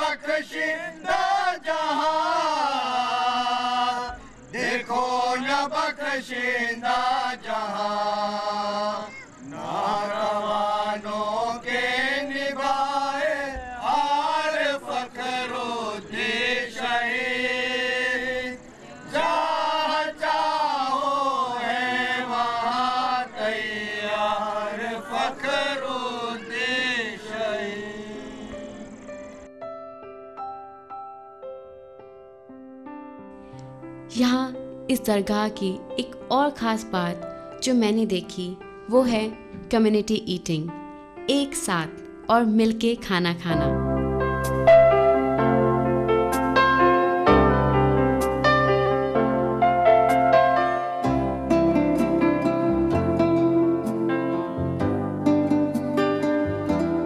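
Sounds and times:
men chanting together: 0.0s - 29.0s.

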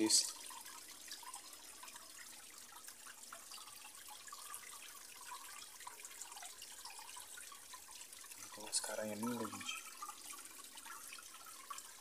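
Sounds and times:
faint trickle of water: 0.0s - 12.0s
water drips and splashes: 0.0s - 12.0s.

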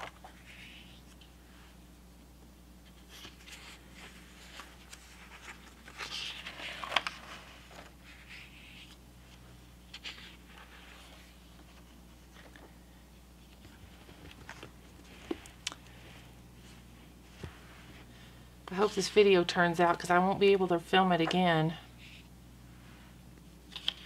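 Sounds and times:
faint low hum: 0.0s - 24.0s
paper pages turning: 2.8s - 12.7s, 23.7s - 24.0s.

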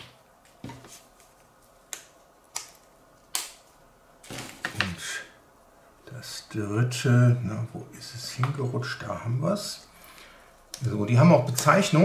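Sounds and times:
electrode pads clicking onto connectors: 1.9s - 3.7s.

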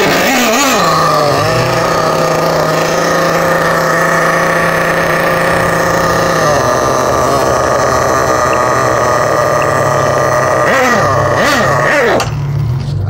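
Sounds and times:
small nitro engine idling: 0.0s - 13.0s.

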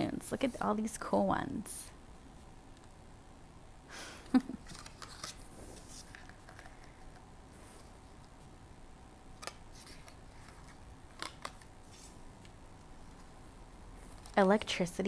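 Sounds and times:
card flaps opening: 4.6s - 7.2s
paper rustles: 4.6s - 8.0s, 9.4s - 12.2s.

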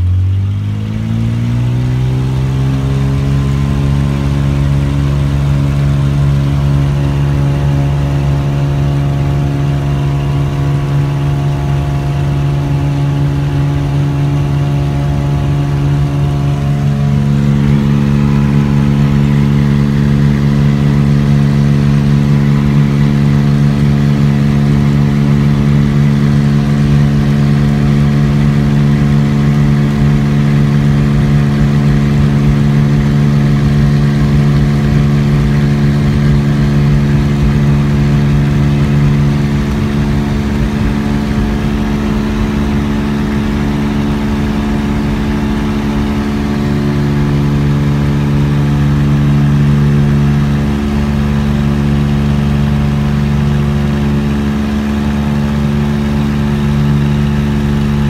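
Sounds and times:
propeller plane engine running: 0.0s - 58.0s.

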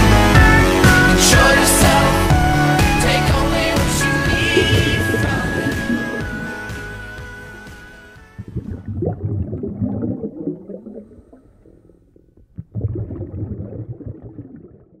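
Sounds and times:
low gurgling rumble: 4.0s - 15.0s.

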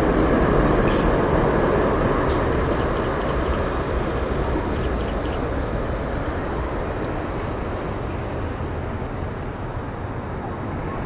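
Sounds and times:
jet engines roaring: 0.0s - 11.0s.

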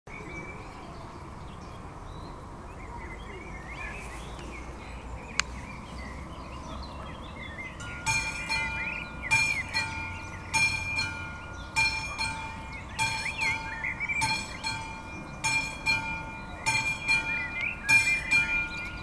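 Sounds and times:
small birds chirping: 0.1s - 19.0s
level crossing warning bell: 7.6s - 19.0s.

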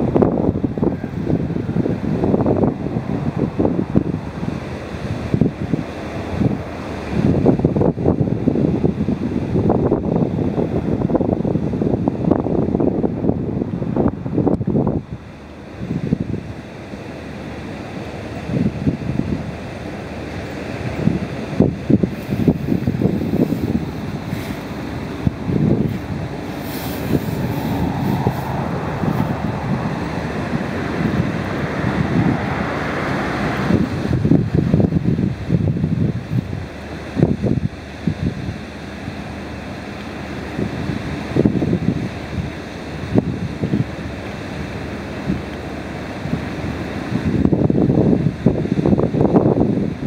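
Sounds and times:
wind buffeting microphone: 0.0s - 50.0s.

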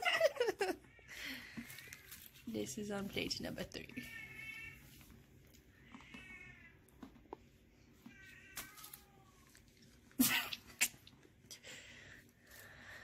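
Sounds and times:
cat meowing: 4.0s - 4.9s, 5.7s - 6.8s.

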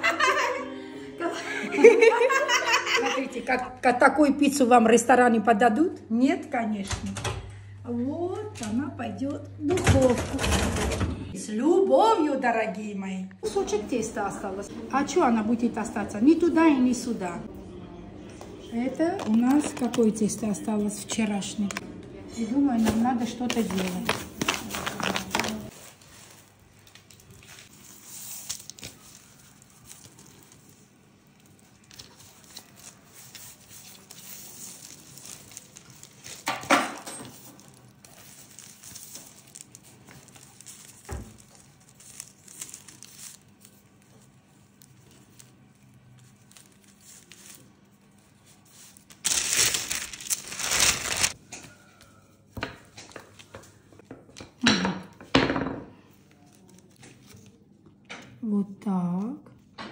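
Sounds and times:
hands rustling dough: 18.8s - 21.7s, 22.7s - 51.8s
paper crinkling and tearing: 22.8s - 51.4s.

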